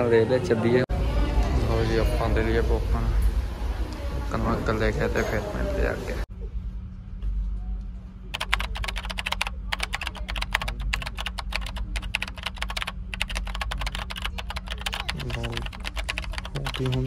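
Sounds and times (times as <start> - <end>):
steady low hum: 0.9 - 17.0.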